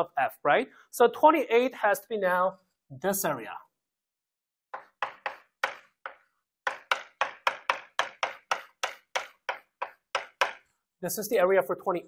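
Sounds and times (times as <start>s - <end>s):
chalk strokes on a blackboard: 4.8s - 10.7s.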